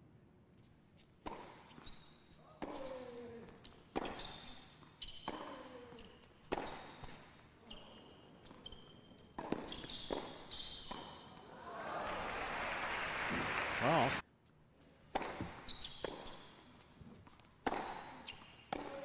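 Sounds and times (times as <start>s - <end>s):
shoes squeaking on court: 0.6s - 11.5s, 14.4s - 19.0s
racket striking tennis ball: 2.6s - 4.5s, 5.2s - 5.7s, 6.4s - 7.2s, 9.3s - 11.2s, 15.1s - 16.4s, 17.6s - 19.0s.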